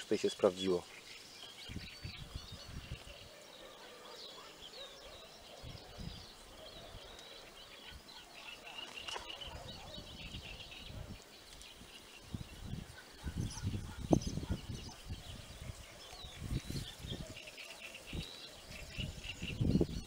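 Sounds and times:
small birds chirping: 0:00.0 - 0:20.0
wind rumbling on microphone: 0:01.6 - 0:03.3, 0:05.1 - 0:08.1, 0:09.0 - 0:20.0.

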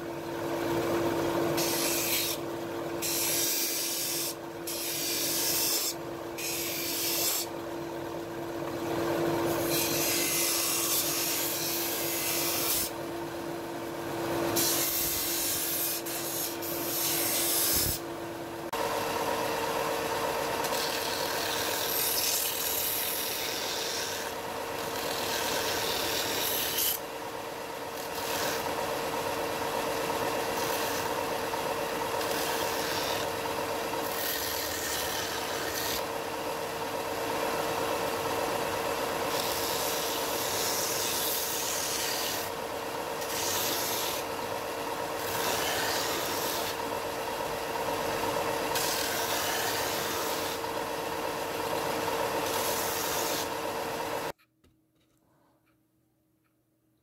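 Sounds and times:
wood sanding rasp: 0:48.7 - 0:50.7, 0:52.4 - 0:53.6.

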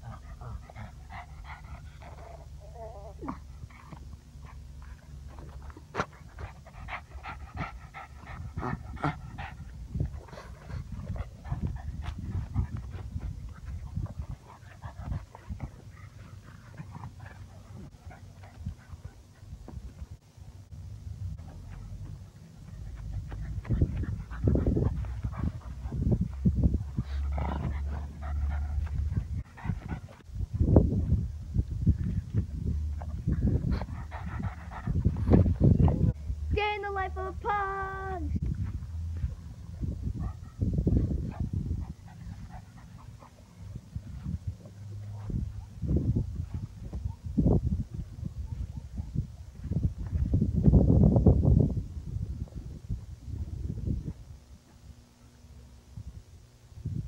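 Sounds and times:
dog panting: 0:00.0 - 0:20.0, 0:21.5 - 0:30.3, 0:33.0 - 0:36.2, 0:40.2 - 0:46.8.

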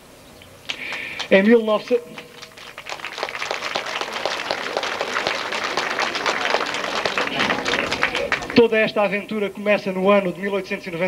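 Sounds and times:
audience applauding: 0:00.7 - 0:01.4, 0:02.1 - 0:08.8.

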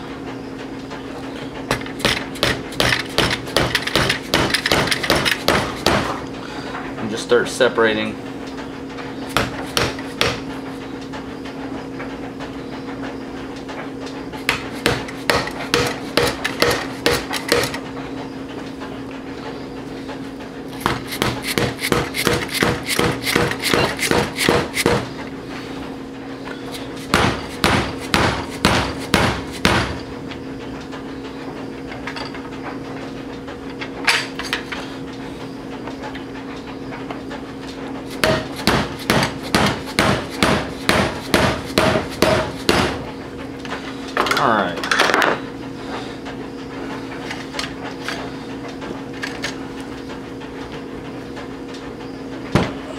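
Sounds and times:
steady low hum: 0:00.0 - 0:52.9
hammer striking chisel: 0:01.7 - 0:06.1, 0:14.5 - 0:17.8, 0:20.8 - 0:25.0, 0:27.1 - 0:30.0, 0:38.2 - 0:43.0.

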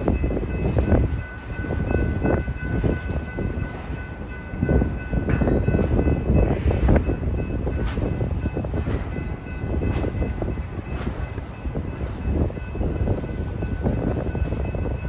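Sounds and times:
crossing bell ringing: 0:00.0 - 0:15.0
train wheels rumbling and knocking: 0:00.0 - 0:15.0.

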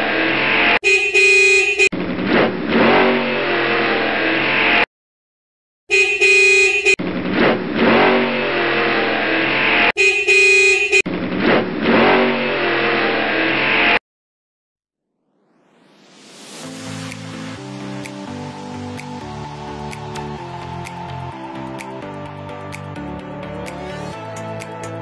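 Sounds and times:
car horn honking: 0:00.8 - 0:01.9, 0:05.9 - 0:07.0, 0:10.0 - 0:11.0.

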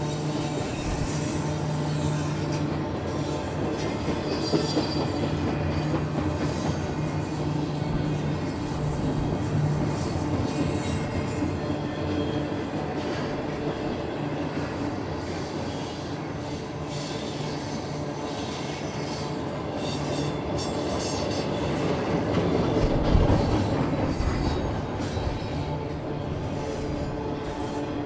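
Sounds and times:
train wheels on rails: 0:00.0 - 0:28.0
high wheel squeal: 0:00.1 - 0:21.9.

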